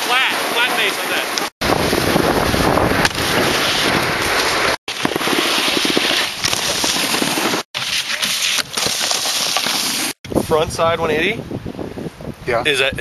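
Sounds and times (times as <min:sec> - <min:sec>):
snowboards scraping over snow: 0:00.5 - 0:10.1
wind buffeting microphone: 0:01.6 - 0:04.7, 0:10.2 - 0:13.0.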